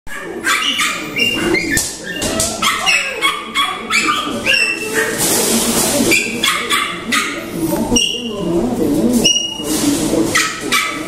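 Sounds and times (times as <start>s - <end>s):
puppies yipping and whimpering: 0.2s - 5.4s, 6.0s - 8.5s, 9.2s - 9.7s.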